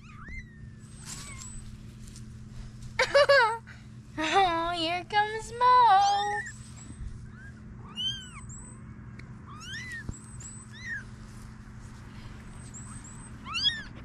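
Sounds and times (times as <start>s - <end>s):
kittens mewing: 0.0s - 1.6s, 7.2s - 8.8s, 9.4s - 11.1s, 12.8s - 14.0s.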